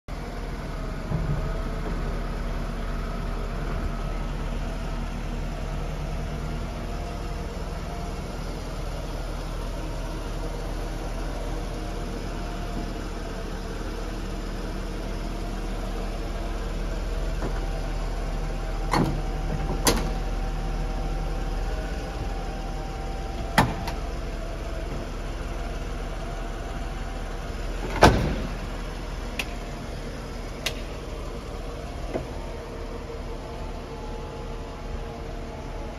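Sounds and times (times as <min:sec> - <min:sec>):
convertible top clunks: 0:18.8 - 0:20.4, 0:23.2 - 0:33.2.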